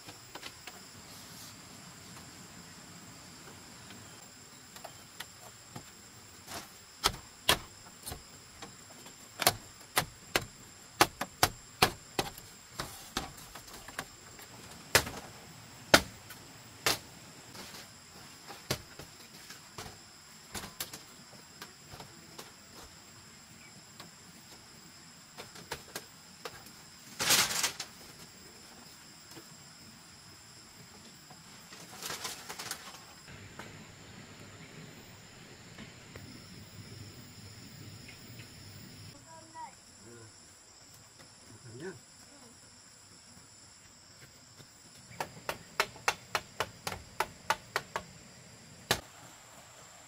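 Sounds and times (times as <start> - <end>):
insects buzzing: 0.0 - 50.0
wooden knocks on bamboo: 9.4 - 14.1, 45.1 - 48.1.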